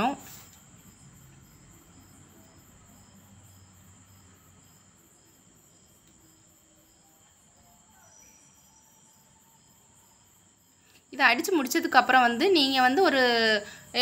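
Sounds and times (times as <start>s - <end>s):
insect chirping: 0.0s - 14.0s
faint steady high tone: 6.1s - 14.0s.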